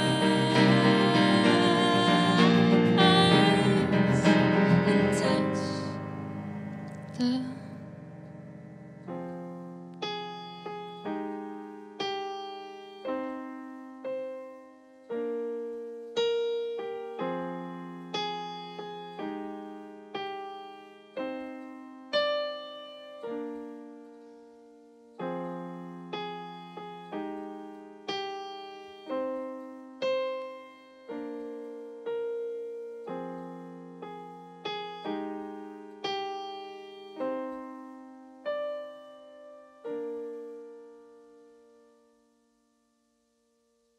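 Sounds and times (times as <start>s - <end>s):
piano chords ringing: 0.0s - 43.8s.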